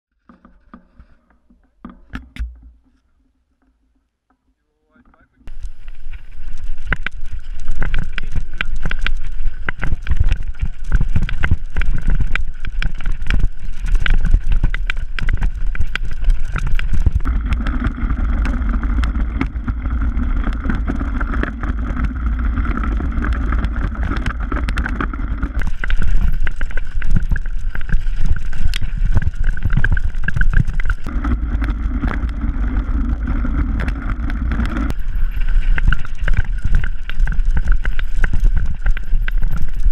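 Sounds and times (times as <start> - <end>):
tyres rumbling over ground: 5.4 - 39.9
bike knocks and rattles: 5.5 - 35.1.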